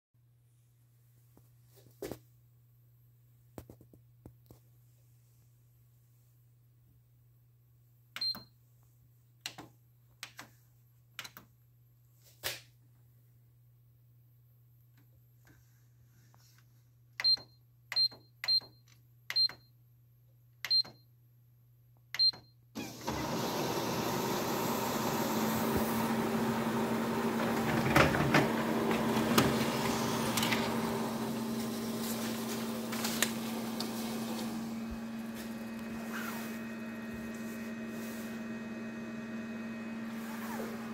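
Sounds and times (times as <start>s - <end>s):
control panel beeps: 17.2s - 19.7s, 22.2s - 22.5s
copier running: 22.8s - 40.9s.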